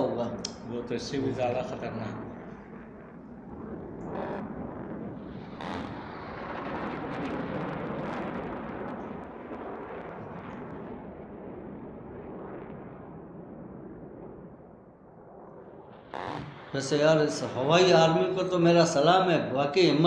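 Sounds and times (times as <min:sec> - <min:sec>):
explosion blasts: 0:00.0 - 0:18.7
continuous rumble: 0:00.0 - 0:20.0
crackle of many impacts: 0:00.4 - 0:17.6.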